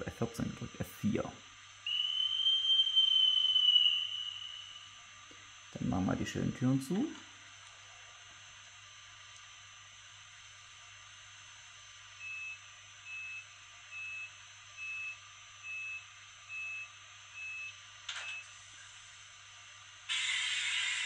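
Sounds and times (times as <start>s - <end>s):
burst of noise: 20.1s - 21.0s.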